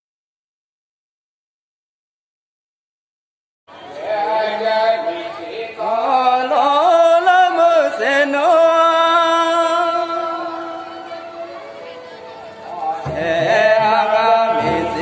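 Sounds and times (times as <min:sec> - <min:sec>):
person singing chant-like melody: 0:03.9 - 0:15.0.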